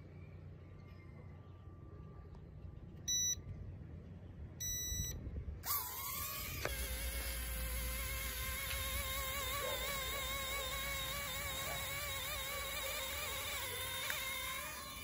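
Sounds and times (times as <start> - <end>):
short electronic beeps: 3.1 - 3.4, 4.6 - 5.2
toy drone propeller whine: 5.6 - 15.0.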